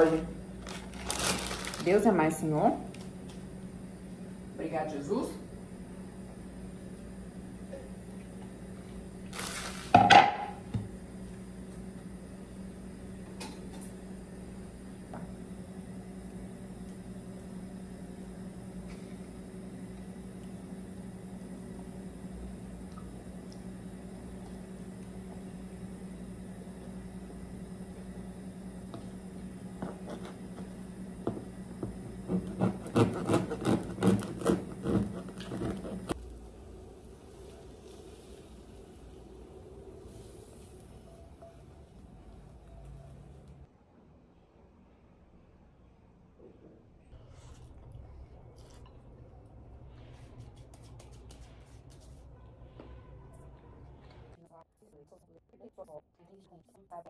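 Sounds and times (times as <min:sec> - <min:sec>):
steady low hum: 0:00.0 - 0:57.0
bread knife sawing crusty bread: 0:32.3 - 0:36.2.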